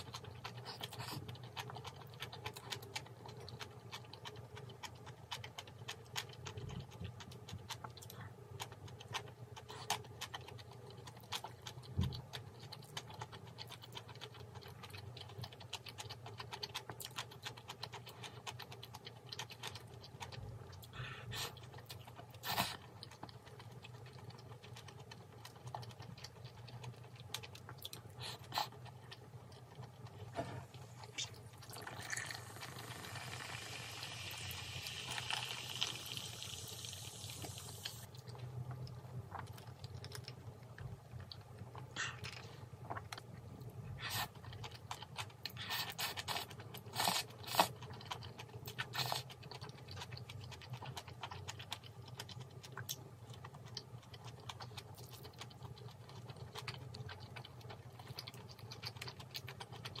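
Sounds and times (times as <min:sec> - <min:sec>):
chewing: 0:00.0 - 1:00.0
soda fizzing: 0:31.7 - 0:38.1.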